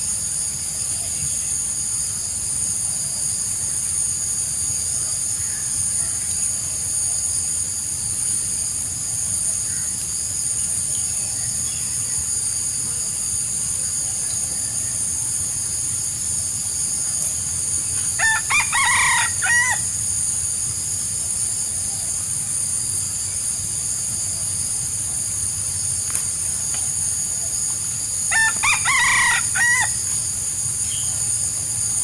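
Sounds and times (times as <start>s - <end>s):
steady high hiss: 0.0s - 32.0s
rooster crowing: 18.1s - 20.0s, 28.2s - 30.2s.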